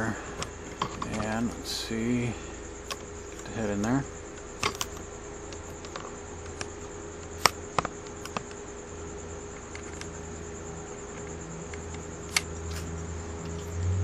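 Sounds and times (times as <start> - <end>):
faint high whine: 0.0 - 14.0
handling clicks and taps: 0.4 - 1.6.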